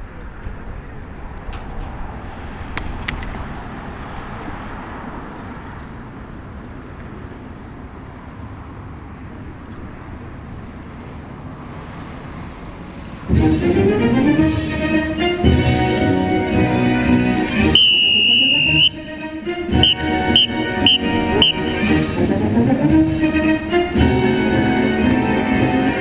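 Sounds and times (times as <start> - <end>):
distant road traffic: 0.0 - 26.0
loud music: 17.6 - 19.0, 19.6 - 23.3.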